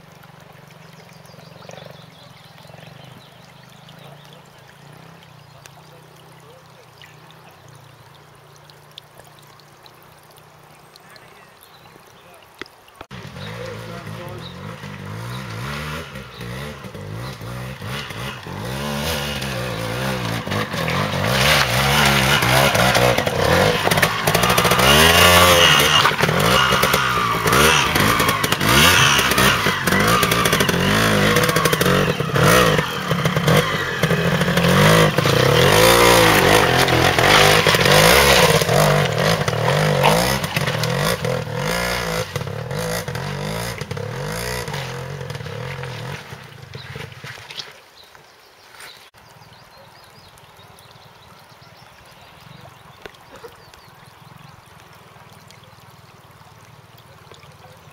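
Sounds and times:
motorcycle engine revving: 0:13.0 - 0:47.7.

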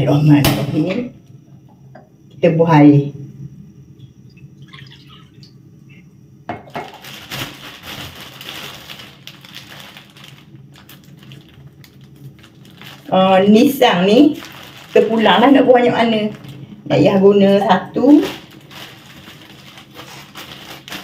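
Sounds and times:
plastic bag rustling: 0:06.6 - 0:21.0.

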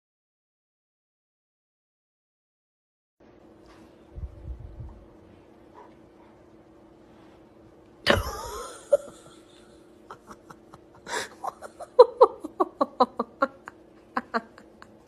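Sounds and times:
person laughing: 0:08.1 - 0:15.0.

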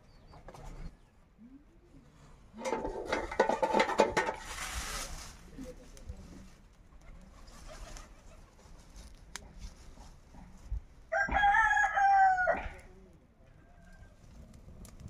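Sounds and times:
rooster crowing: 0:11.1 - 0:12.9, 0:13.5 - 0:14.2.

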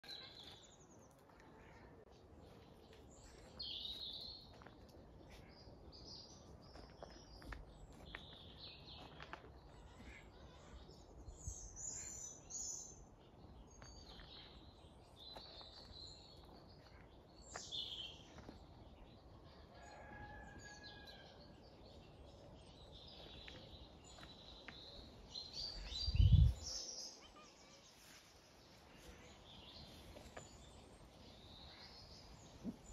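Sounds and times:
small birds chirping: 0:00.0 - 0:32.9.

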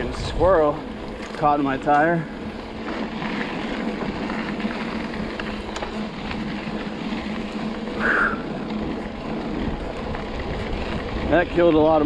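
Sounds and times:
bike clicks and rattles: 0:00.0 - 0:12.0
bike tyres rolling on dirt: 0:00.0 - 0:12.0.

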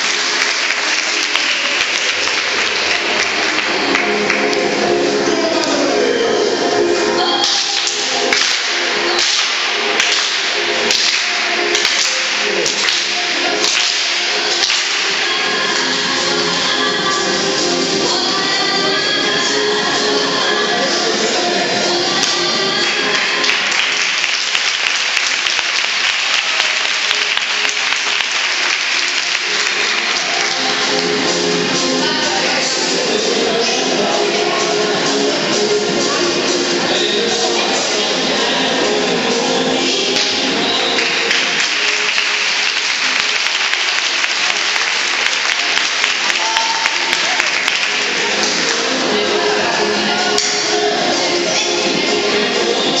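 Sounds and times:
audience applauding: 0:00.0 - 0:04.6, 0:23.2 - 0:30.6, 0:41.0 - 0:48.7
quiet background music: 0:00.0 - 0:53.0.

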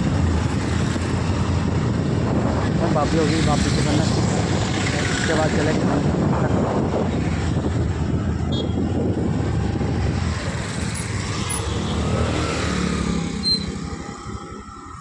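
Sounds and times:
wind rumble on microphone: 0:00.0 - 0:15.0
motorcycle passing: 0:09.0 - 0:14.8.

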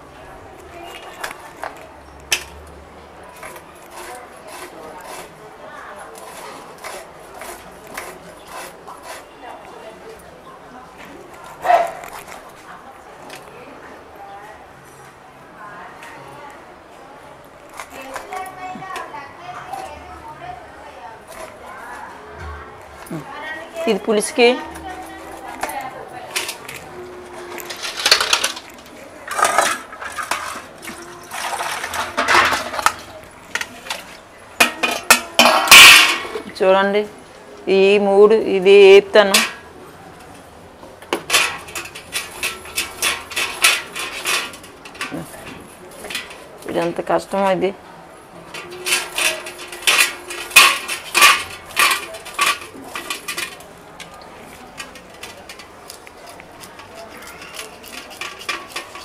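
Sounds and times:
metal blade scraping fish: 0:03.4 - 0:05.4, 0:06.2 - 0:09.4, 0:41.3 - 0:45.2, 0:48.5 - 0:53.8, 0:54.7 - 0:59.0.

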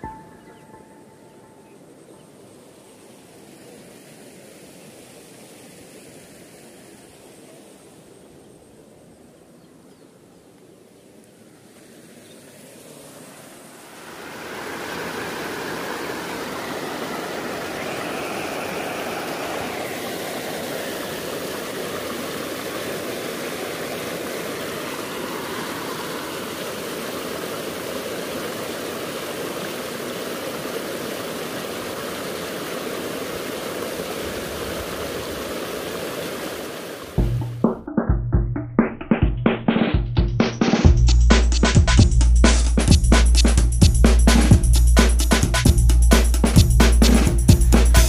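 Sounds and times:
waterfall rushing: 0:00.0 - 0:08.3, 0:11.4 - 0:37.5.

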